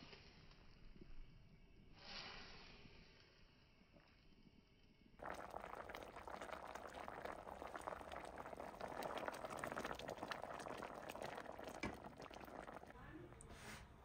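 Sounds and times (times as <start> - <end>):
curry bubbling in metal pot: 3.8 - 14.0.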